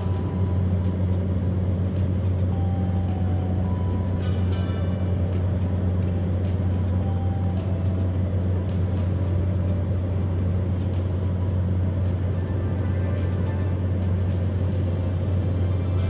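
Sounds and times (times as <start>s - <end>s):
aircraft engine drone: 0.0s - 16.0s.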